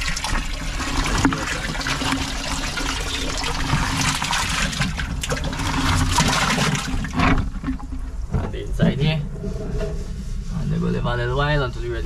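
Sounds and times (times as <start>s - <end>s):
water pouring into barrel: 0.0s - 8.0s.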